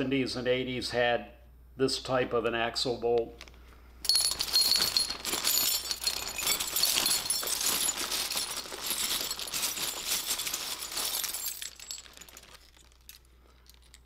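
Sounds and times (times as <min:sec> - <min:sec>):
metal hardware clinking: 0:04.0 - 0:14.0
plastic bags crinkling: 0:04.1 - 0:14.0.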